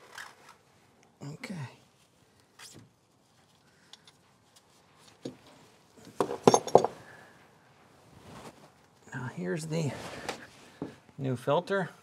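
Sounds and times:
metal tools clinking and knocking: 6.2 - 7.0.

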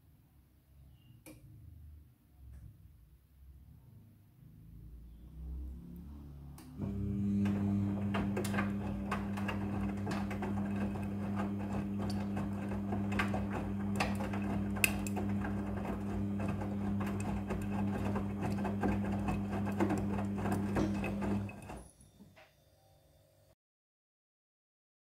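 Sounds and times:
washing machine motor hum: 6.4 - 21.8.

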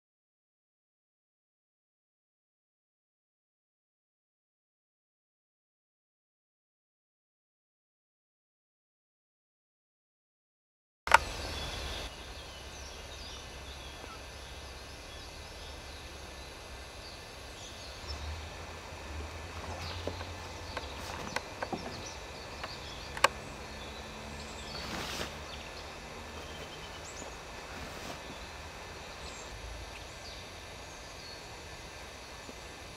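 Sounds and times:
sharp clicks: 11.1 - 11.8, 22.5 - 23.4
low steady rumble: 11.1 - 32.9
small birds chirping: 11.1 - 32.9.

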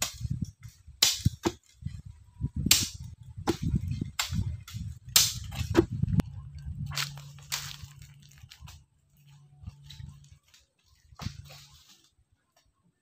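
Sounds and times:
low rumble: 1.8 - 10.4.

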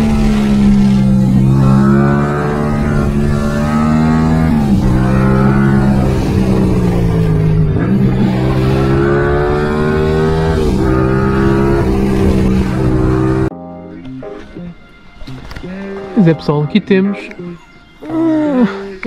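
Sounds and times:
motorcycle engine running loud: 0.0 - 13.5.

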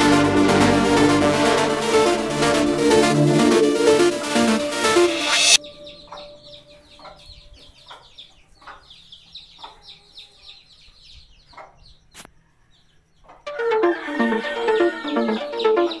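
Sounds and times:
chicks peeping: 5.6 - 16.0.

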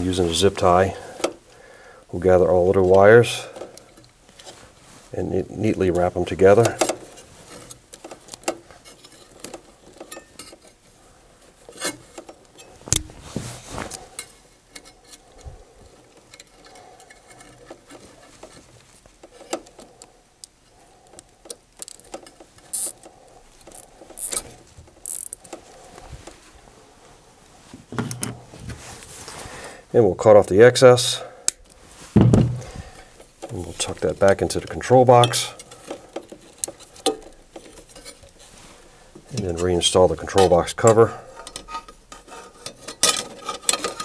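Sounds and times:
wire harness clicks and rustles: 5.7 - 26.5, 33.1 - 44.0
zip tie pulled tight: 22.7 - 23.0, 23.7 - 24.4, 25.0 - 25.4.

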